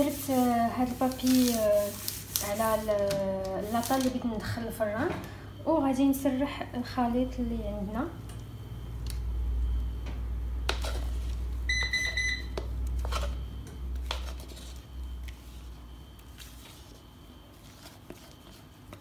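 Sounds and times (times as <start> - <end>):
spatula scraping plastic bowl: 13.0 - 15.6, 16.2 - 19.0.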